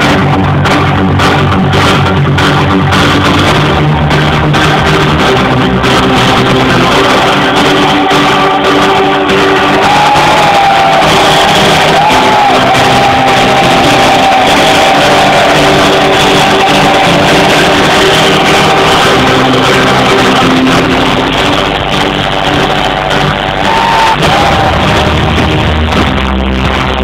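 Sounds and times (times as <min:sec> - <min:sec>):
crowd shouting: 0:06.7 - 0:25.7.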